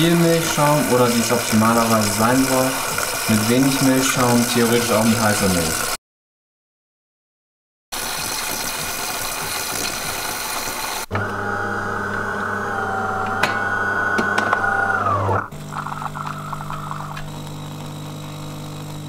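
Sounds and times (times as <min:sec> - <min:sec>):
coffee machine hissing: 0:00.0 - 0:06.0, 0:08.0 - 0:19.0
coffee machine motor hum and whine: 0:00.0 - 0:06.0, 0:10.8 - 0:19.0.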